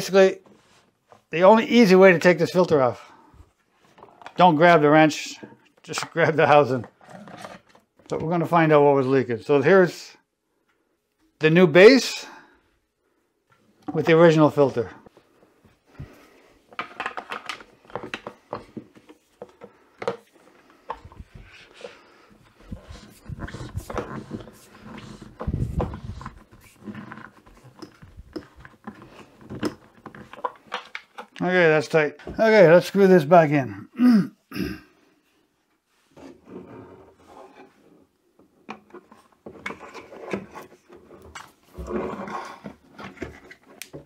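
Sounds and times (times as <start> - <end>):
plastic scraping and creaking: 5.4 - 8.4, 16.7 - 31.5, 36.2 - 44.0.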